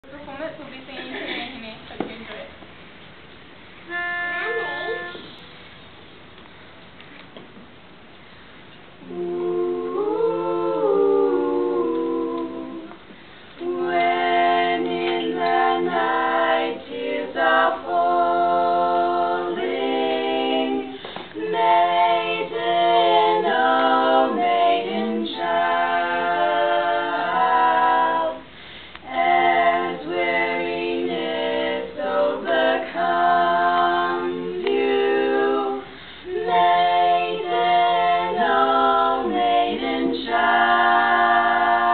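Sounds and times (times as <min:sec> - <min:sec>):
girls singing barbershop a cappella: 0:09.0 - 0:41.9.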